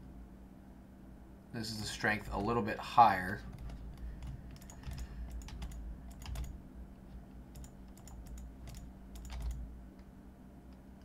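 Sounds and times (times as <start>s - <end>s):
low steady hum: 0.0s - 11.0s
computer keyboard keys clicking: 3.5s - 6.6s, 7.5s - 9.6s.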